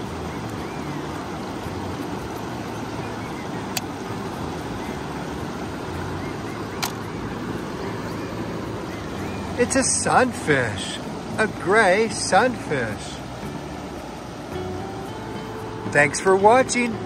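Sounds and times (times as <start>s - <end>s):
river rushing: 0.0s - 17.0s.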